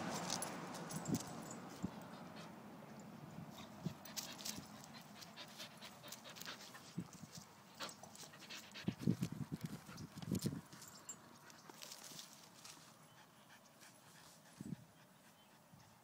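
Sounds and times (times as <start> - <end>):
dog panting: 3.6 - 10.2.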